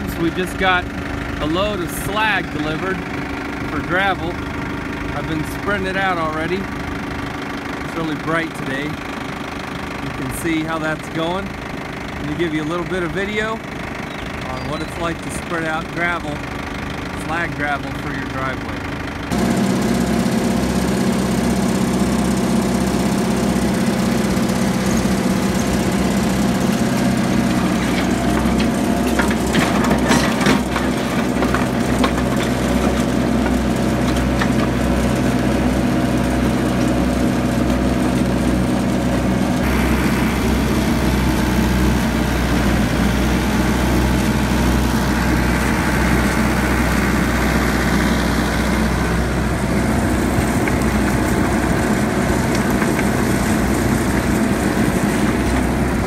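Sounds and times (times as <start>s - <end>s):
tractor diesel engine running: 0.0s - 56.0s
gravel scraping and crunching: 24.9s - 56.0s.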